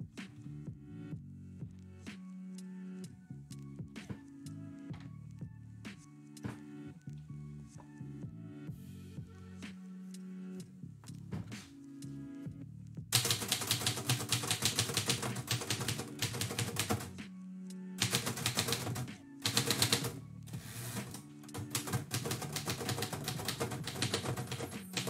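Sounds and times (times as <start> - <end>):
typewriter keys clacking: 13.2 - 17.1, 18.0 - 25.0.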